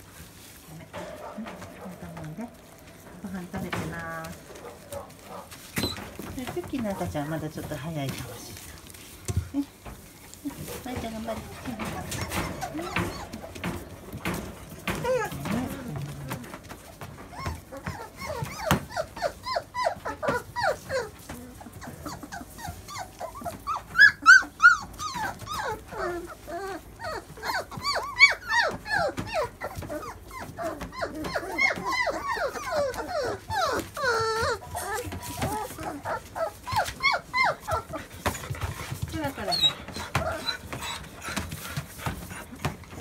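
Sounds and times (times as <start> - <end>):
puppies whining and yipping: 0.0 - 43.0
puppy yelps: 17.3 - 38.5, 39.4 - 41.1.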